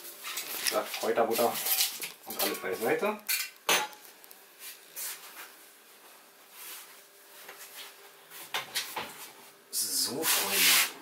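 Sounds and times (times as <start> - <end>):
faint rustling and handling: 0.1 - 3.1, 4.0 - 8.5.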